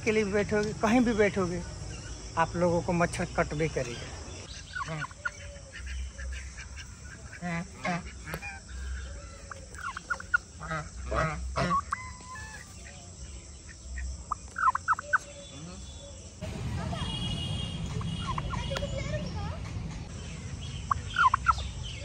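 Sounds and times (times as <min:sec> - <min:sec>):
turkey gobbling: 0:04.6 - 0:13.0, 0:13.7 - 0:15.3, 0:17.9 - 0:18.8, 0:20.9 - 0:21.7.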